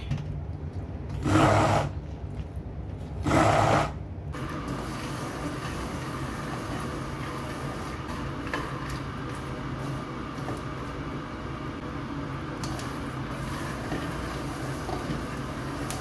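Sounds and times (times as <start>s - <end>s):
stick blender motor running: 1.1s - 1.9s.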